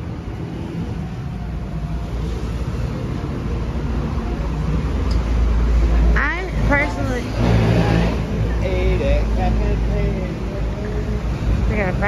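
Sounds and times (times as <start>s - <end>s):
cars passing on road: 0.0s - 12.0s.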